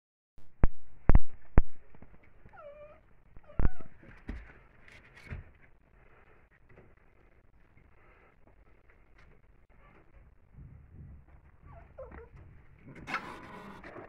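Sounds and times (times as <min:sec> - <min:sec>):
young animal whimpering: 0:02.5 - 0:04.1, 0:11.6 - 0:12.4, 0:13.0 - 0:14.0.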